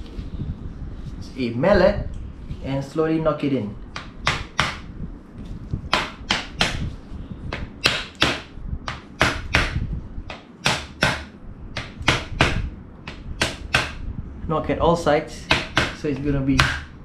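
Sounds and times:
rubber mallet knocking: 15.5 - 16.0.

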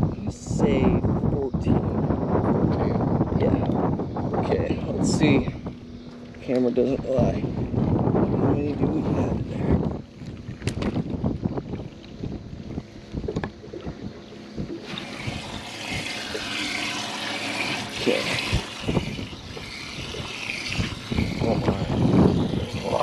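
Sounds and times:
wind on microphone: 0.0 - 23.0
water splashing and trickling: 9.9 - 23.0.

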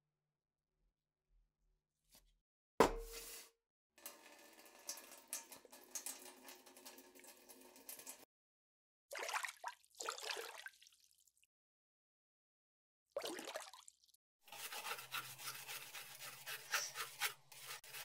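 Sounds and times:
tap water running into basin: 4.0 - 8.3, 14.5 - 18.0
hands scrubbing in soapy water: 14.5 - 18.0.

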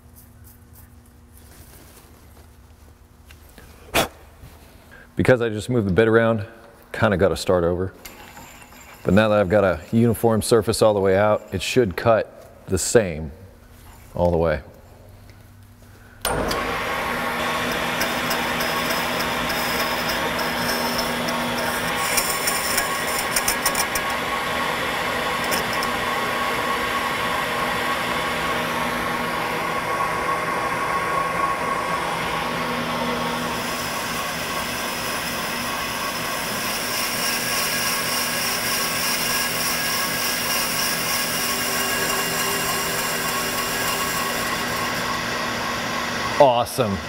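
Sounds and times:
lathe machining whirr: 8.0 - 11.8, 16.2 - 47.0.

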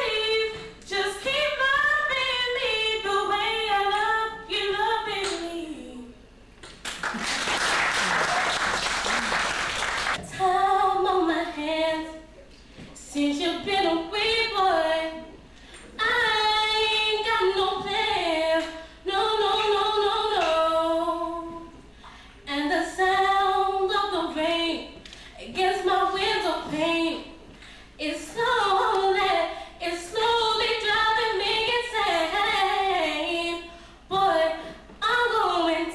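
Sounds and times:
women singing a cappella: 0.0 - 6.3, 10.2 - 35.9
applause: 6.7 - 10.2.

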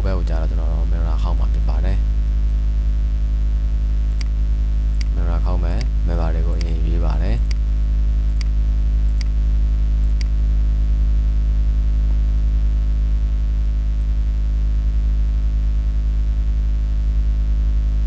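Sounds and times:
loud electrical hum: 0.0 - 18.0
faint clicks: 4.2 - 6.0, 6.6 - 6.8, 7.4 - 7.6, 8.3 - 9.4, 10.0 - 10.4.

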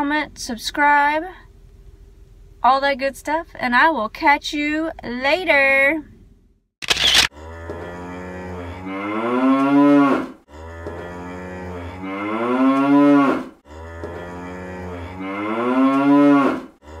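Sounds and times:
cow mooing: 7.3 - 17.0.

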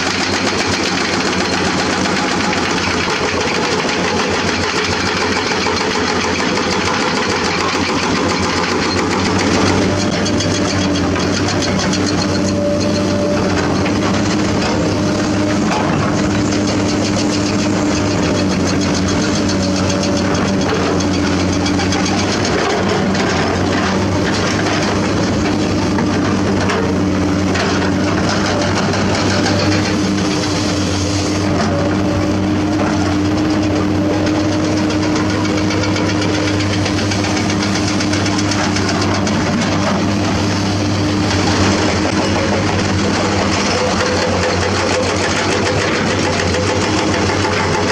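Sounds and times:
excavator diesel engines running: 0.0 - 47.9
fast even clatter: 41.3 - 47.9.

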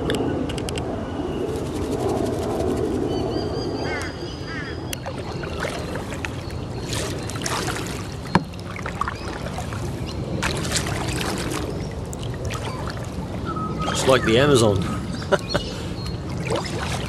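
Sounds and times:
paddle splashing in water: 5.0 - 14.2, 16.2 - 17.0.

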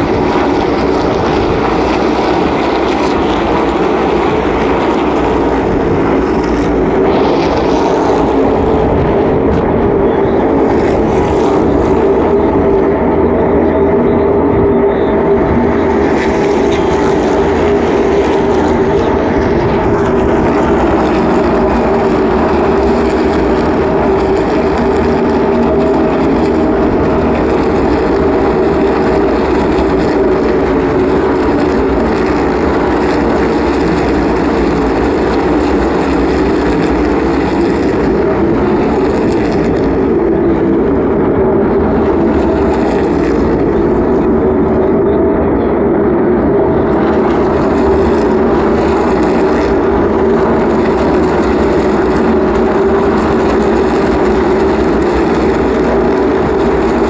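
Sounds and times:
race car engines droning: 0.0 - 57.0.

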